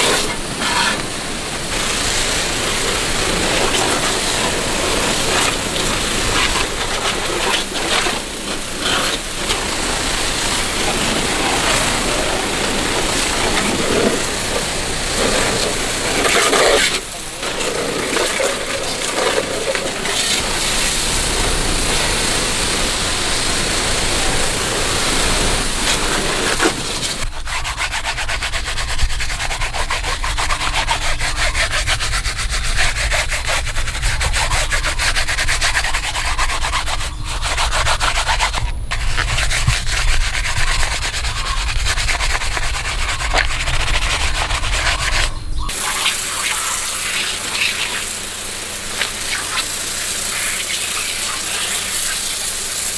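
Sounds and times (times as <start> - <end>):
steady rushing noise: 0.0 - 27.5, 32.2 - 52.9
hands scrubbing rubber mat: 0.0 - 52.9.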